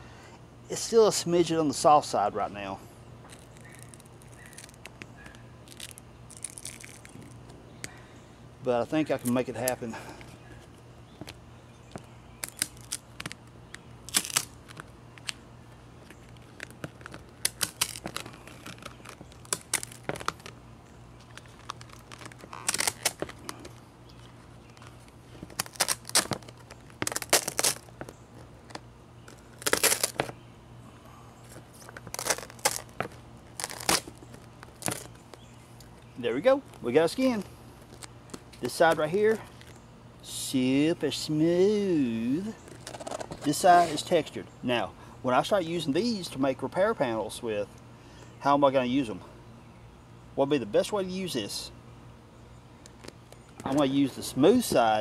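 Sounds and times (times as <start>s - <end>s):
low steady hum: 0.0s - 55.0s
fiberglass peeling and crackling: 3.2s - 8.0s, 11.1s - 30.4s, 31.4s - 39.8s, 42.6s - 44.0s, 52.8s - 53.8s.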